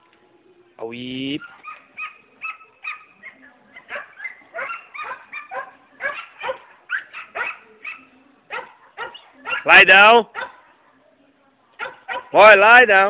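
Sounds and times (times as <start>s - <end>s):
dog yipping and barking: 1.4s - 10.7s, 11.8s - 12.4s.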